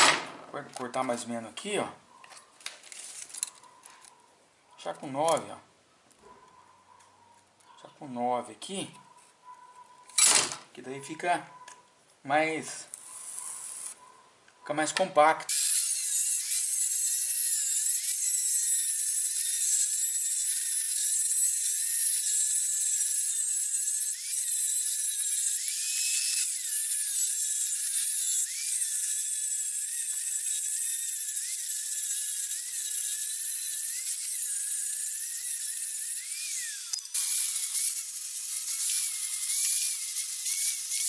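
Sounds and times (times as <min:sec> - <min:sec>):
angle grinder cutting steel: 0:15.5 - 0:41.0.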